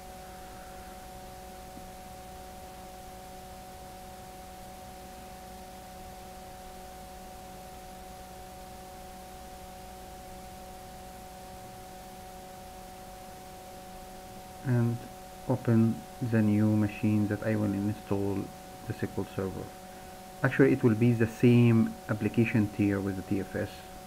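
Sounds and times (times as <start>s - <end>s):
electrical hum: 0.0s - 24.0s
faint hiss: 0.0s - 24.0s.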